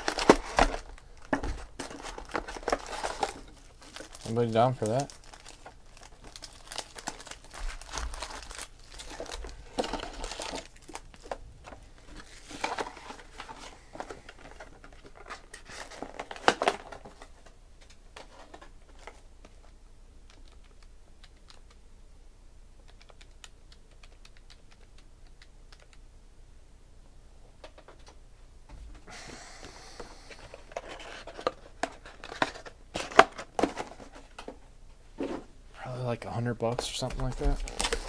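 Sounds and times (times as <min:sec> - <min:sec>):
foil wrappers crinkling: 0:00.0 - 0:17.5, 0:36.8 - 0:38.0.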